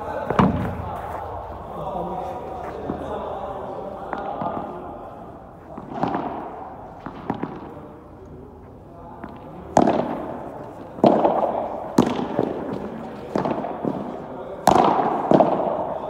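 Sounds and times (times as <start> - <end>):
ball struck by rackets: 0.2 - 1.5, 4.0 - 8.1, 9.2 - 16.0.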